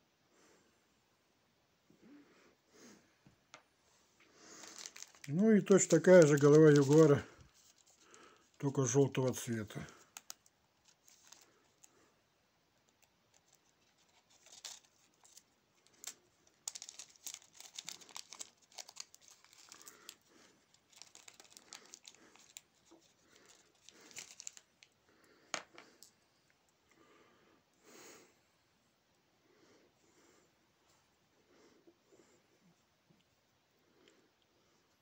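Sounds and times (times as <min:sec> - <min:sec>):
plastic bag crinkling: 0:04.4 - 0:12.0, 0:12.9 - 0:25.0.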